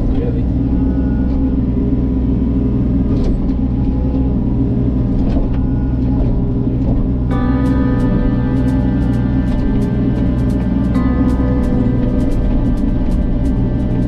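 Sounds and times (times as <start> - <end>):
excavator diesel engine running: 0.0 - 14.0
music: 7.0 - 14.0.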